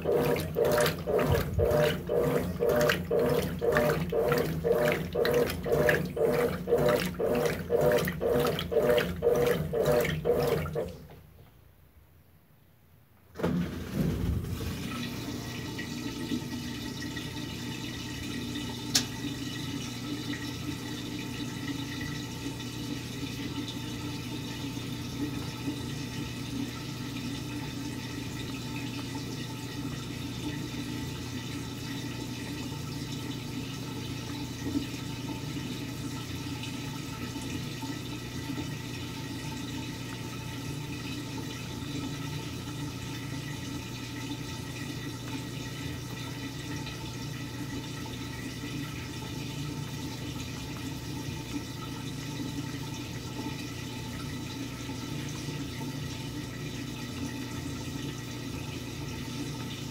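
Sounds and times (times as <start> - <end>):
water draining: 0.0 - 11.3, 13.4 - 23.8
washing machine drain pump humming: 0.0 - 11.6, 13.2 - 59.9.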